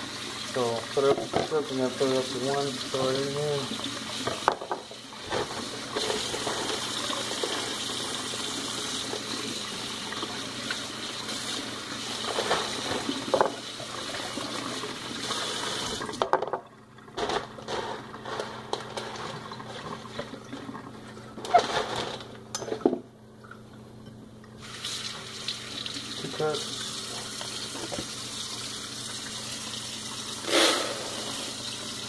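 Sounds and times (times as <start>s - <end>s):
kitchen faucet running: 0.0s - 22.2s, 24.6s - 32.0s.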